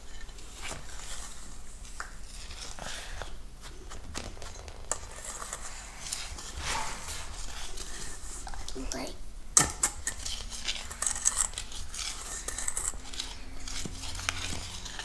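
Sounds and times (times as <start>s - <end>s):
whisk scraping metal bowl: 4.9s - 8.8s, 9.8s - 15.0s.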